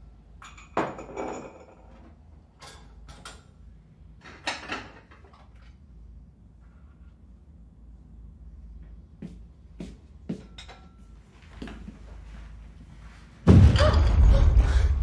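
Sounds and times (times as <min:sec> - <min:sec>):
deep rumbling explosion boom: 0:13.5 - 0:15.0.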